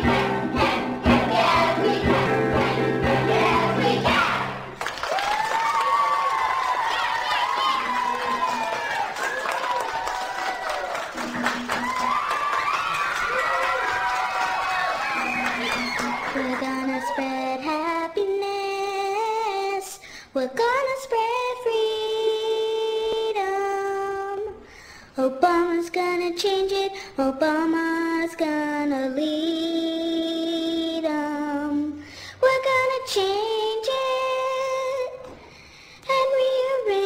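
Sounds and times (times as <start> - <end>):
high voices singing: 0.0 - 4.8.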